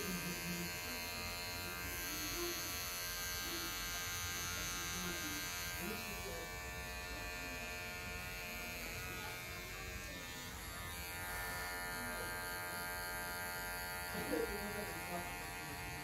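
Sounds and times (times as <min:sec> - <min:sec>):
electric hair clipper buzzing: 0:00.0 - 0:16.0.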